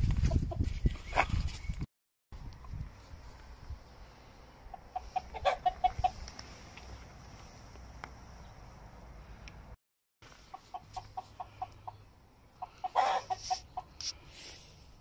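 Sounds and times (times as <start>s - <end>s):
rooster clucking: 4.7s - 6.3s, 10.5s - 14.0s.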